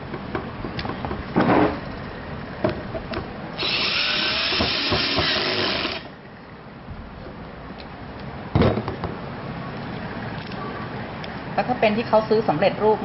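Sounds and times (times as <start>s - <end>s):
cordless drill running: 3.6s - 6.1s.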